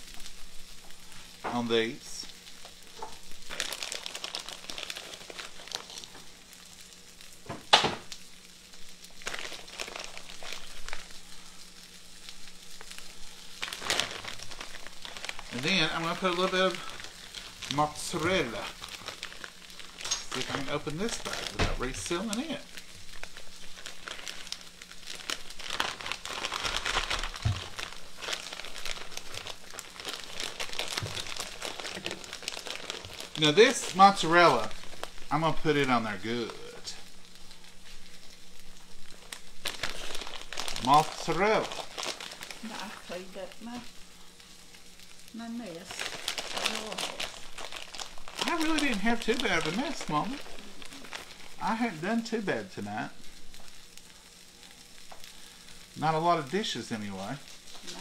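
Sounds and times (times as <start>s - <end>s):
faint sizzle from pan: 0.0s - 58.0s
plastic bag crinkling: 0.0s - 58.0s.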